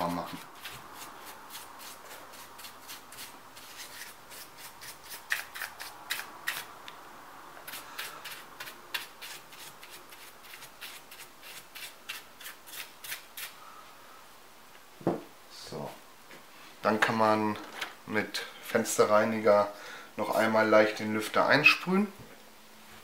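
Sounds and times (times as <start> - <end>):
paintbrush scratchy strokes: 0.0 - 5.4, 7.7 - 13.6.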